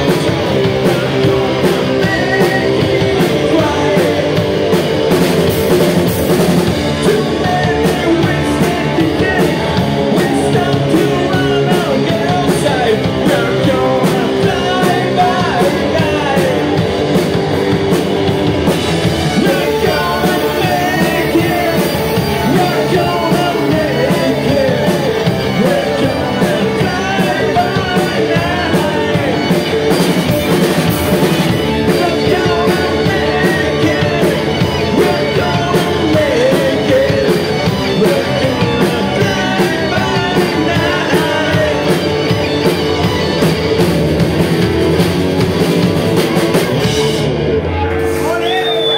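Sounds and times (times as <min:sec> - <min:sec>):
man singing into microphone: 0:00.0 - 0:04.4, 0:07.0 - 0:16.8, 0:19.2 - 0:29.6, 0:31.6 - 0:42.4
drum kit: 0:00.0 - 0:48.9
electric bass: 0:00.0 - 0:48.9
electric guitars: 0:00.0 - 0:48.9.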